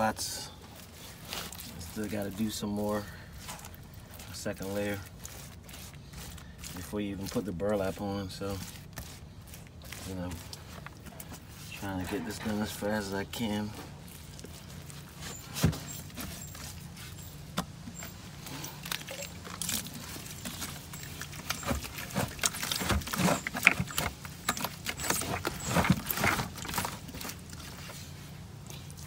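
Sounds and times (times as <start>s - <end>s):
brush dabbing wet cement: 0.0s - 18.2s.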